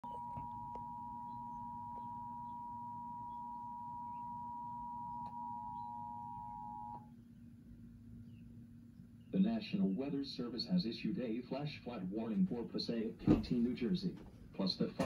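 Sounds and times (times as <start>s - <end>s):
two-tone alert signal: 0.0s - 7.0s.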